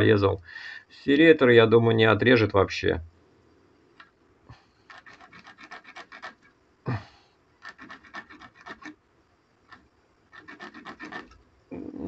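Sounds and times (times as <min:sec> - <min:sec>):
serrated knife sawing across line: 0:04.9 - 0:06.5, 0:07.6 - 0:09.0, 0:09.7 - 0:11.4.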